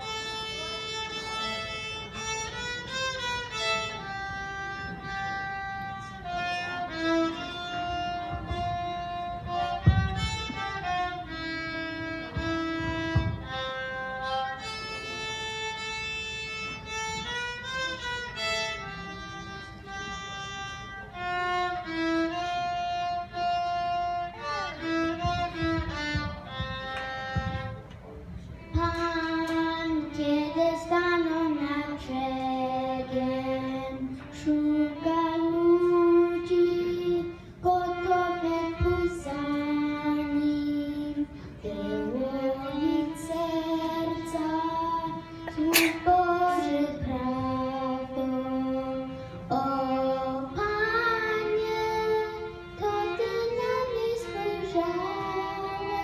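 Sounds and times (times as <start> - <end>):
solo violin melody: 0.0 - 56.0
girl singing into microphone: 5.9 - 15.1, 21.1 - 27.7, 28.6 - 56.0.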